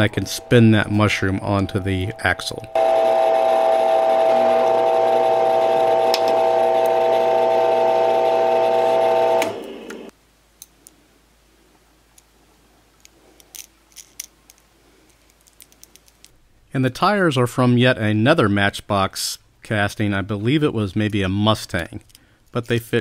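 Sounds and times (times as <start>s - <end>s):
lathe motor running: 0.0s - 10.1s
small metal parts clicking: 13.0s - 16.4s.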